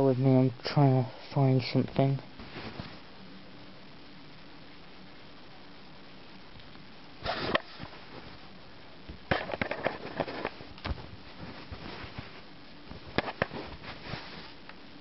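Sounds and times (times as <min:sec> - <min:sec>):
rustling: 0:02.3 - 0:03.2, 0:07.2 - 0:15.0.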